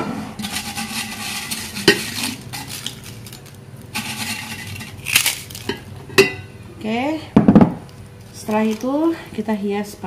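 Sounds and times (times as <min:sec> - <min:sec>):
crackers crackling and rustling: 0:00.4 - 0:06.0, 0:07.8 - 0:09.6
cracker clinking against bowl: 0:01.3 - 0:06.5.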